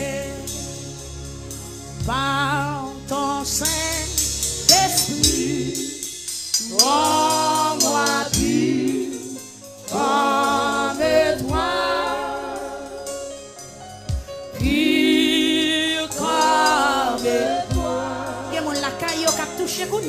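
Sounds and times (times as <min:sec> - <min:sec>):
congregation singing gospel song: 0:00.0 - 0:20.0
musical backing with low beats: 0:00.0 - 0:20.0.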